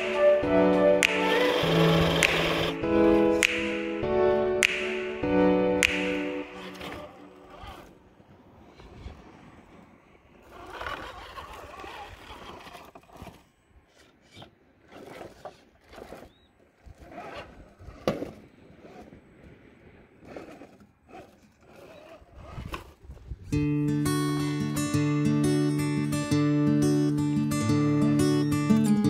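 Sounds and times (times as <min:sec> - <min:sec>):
strummed acoustic guitar music: 0:00.0 - 0:07.4, 0:23.6 - 0:29.0
rc car scraping on rocks: 0:06.6 - 0:08.0, 0:10.3 - 0:19.2, 0:20.0 - 0:23.5.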